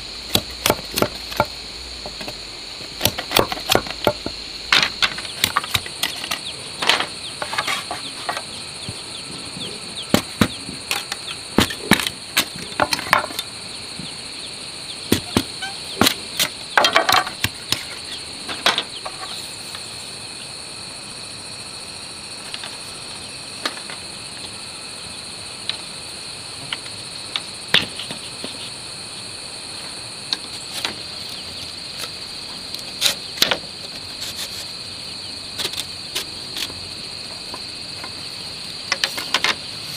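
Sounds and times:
high-pitched insect drone: 0.0 - 39.9
machete splitting bamboo: 0.3 - 1.5, 3.0 - 7.7, 15.1 - 18.0
bamboo strips clacking on ground: 3.0 - 9.0, 10.1 - 13.5, 15.1 - 19.4.

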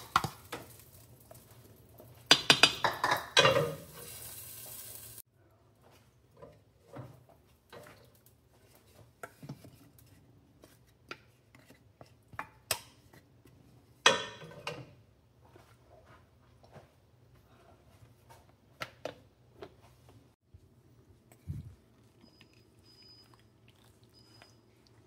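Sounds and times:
spoon stirring vegetables in a crock: 0.0 - 4.9, 5.7 - 17.0
spoon clattering and scraping: 2.2 - 3.9.

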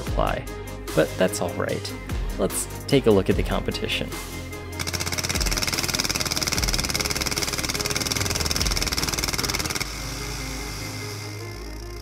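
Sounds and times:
air hissing: 4.8 - 12.0.

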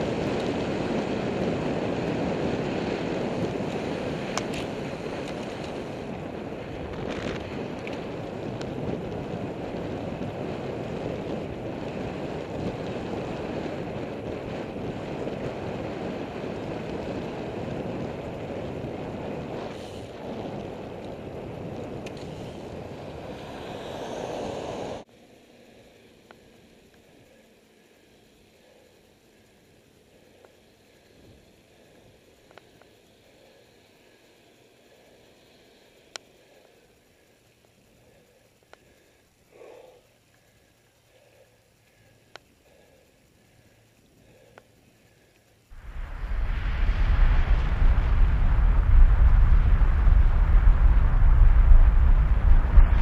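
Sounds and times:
wind rushing over microphone: 0.0 - 25.1, 45.7 - 53.0
bicycle road noise: 0.0 - 53.0
faint hiss: 17.9 - 20.8, 22.0 - 53.0.

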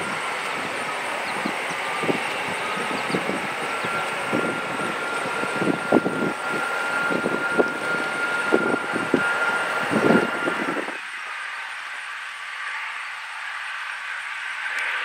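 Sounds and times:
jet engine whine and roar: 0.0 - 15.0.

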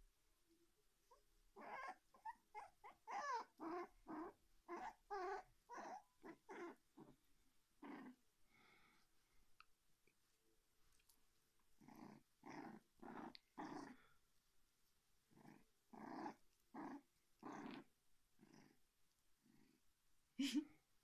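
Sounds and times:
puppy growling softly: 1.0 - 9.4, 10.9 - 14.2, 15.2 - 19.9.

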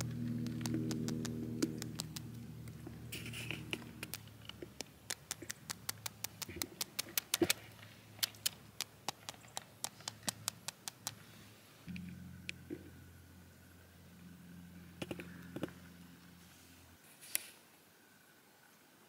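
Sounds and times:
hand clicking pebbles underwater: 0.0 - 2.8, 3.4 - 11.2.

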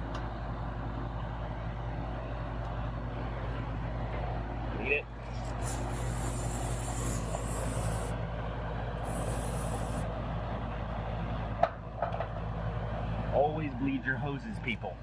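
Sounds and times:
air conditioning unit humming: 0.0 - 15.0
high hisses: 5.4 - 8.2, 9.0 - 10.0.

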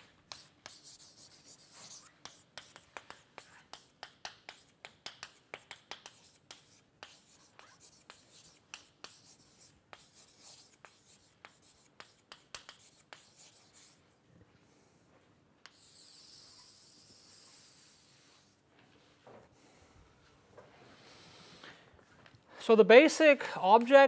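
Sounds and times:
chalk scraping on chalkboard: 0.0 - 14.1, 15.6 - 18.6
chalk tapping and scratching: 0.0 - 14.1, 15.6 - 18.6.

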